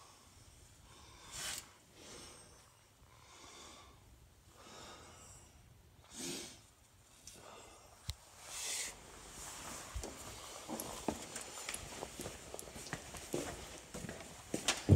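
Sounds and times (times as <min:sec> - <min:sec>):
soft breathing close to microphone: 0:00.0 - 0:10.8.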